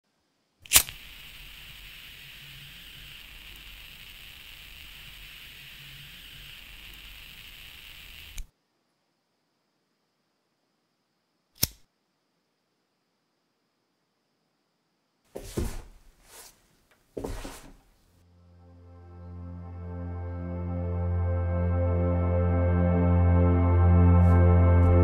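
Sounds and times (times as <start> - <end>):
lighter clicking: 0.7 - 1.3
gas flame hissing: 0.7 - 8.4.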